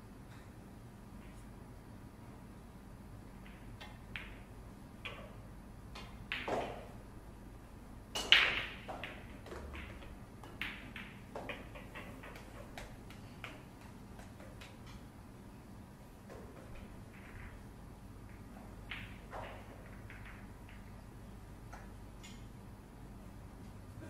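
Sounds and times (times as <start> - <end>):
balls clicking and tapping: 3.2 - 7.2, 8.0 - 22.6
pool cue striking ball: 6.0 - 7.0, 8.1 - 15.0, 18.3 - 20.8.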